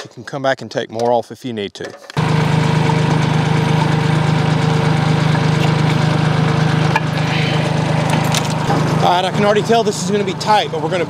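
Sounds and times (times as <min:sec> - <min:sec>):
tractor engine idling: 0:02.2 - 0:11.0.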